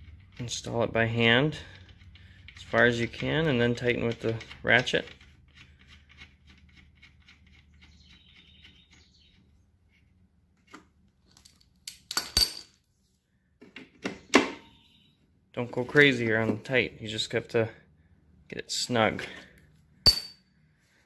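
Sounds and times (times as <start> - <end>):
metallic clinks: 20.1 - 20.4.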